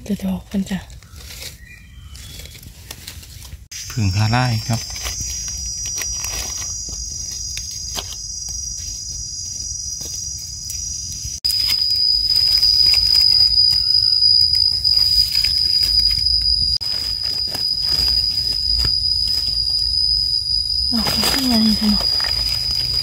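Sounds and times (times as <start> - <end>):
dry leaves rustling: 0.6 - 9.6, 11.4 - 23.0
insects droning: 3.7 - 23.0.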